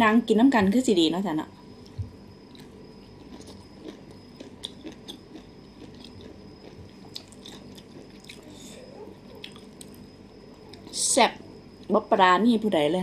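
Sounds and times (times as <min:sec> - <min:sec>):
mouth clicks and crunches: 0:01.8 - 0:10.0
person chewing wet food: 0:01.8 - 0:11.0.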